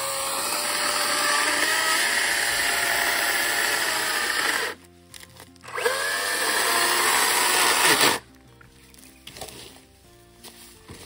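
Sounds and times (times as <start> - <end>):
electric chainsaw motor whine: 0.0 - 4.8, 5.7 - 8.2.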